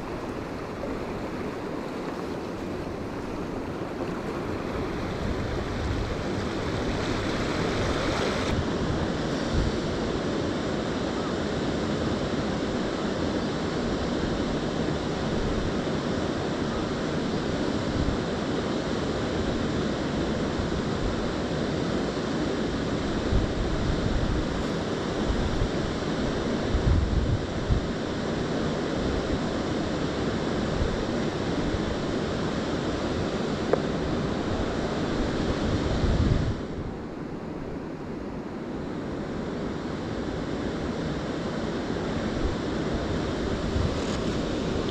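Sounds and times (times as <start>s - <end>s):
wind buffeting microphone: 0.0s - 10.4s, 23.1s - 28.1s, 30.6s - 37.0s, 42.2s - 44.9s
river current rushing: 0.0s - 26.8s, 27.4s - 44.9s.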